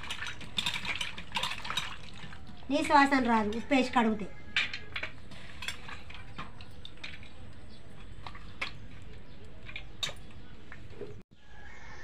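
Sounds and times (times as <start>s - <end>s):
wet squishing of fish in water: 0.0s - 3.2s.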